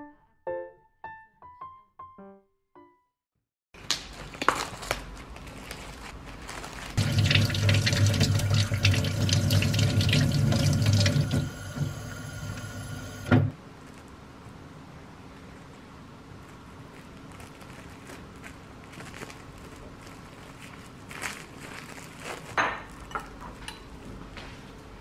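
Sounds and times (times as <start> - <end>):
water splashing from tap: 7.0 - 13.3.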